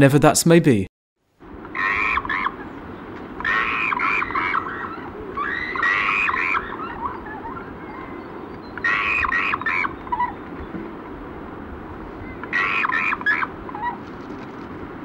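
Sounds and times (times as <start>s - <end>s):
steady outdoor hiss: 0.0s - 15.0s
pulsed animal calls: 1.6s - 10.8s, 12.2s - 14.1s.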